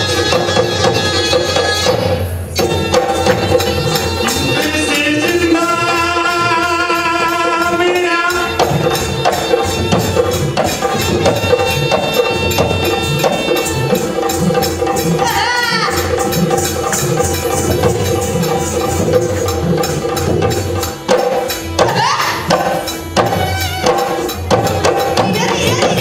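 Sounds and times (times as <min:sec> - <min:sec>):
harmonium drone: 0:00.0 - 0:15.3
percussion steady beat: 0:00.0 - 0:26.0
wavering held melody: 0:08.2 - 0:26.0.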